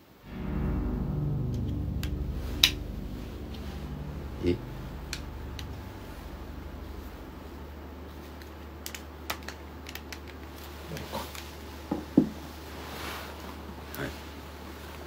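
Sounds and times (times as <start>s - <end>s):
steady low hum: 0.0s - 8.8s.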